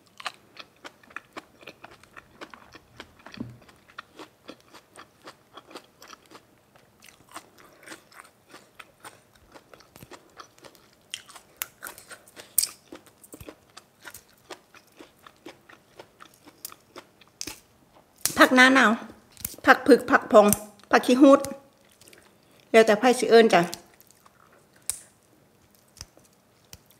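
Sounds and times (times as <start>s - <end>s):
chewing and crunching food: 0.0s - 18.3s, 21.5s - 22.8s, 23.8s - 26.9s.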